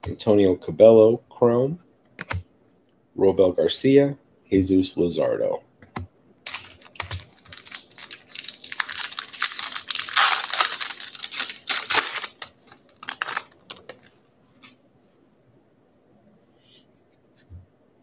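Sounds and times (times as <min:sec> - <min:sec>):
foil wrapper tearing and crinkling: 0:06.4 - 0:13.9.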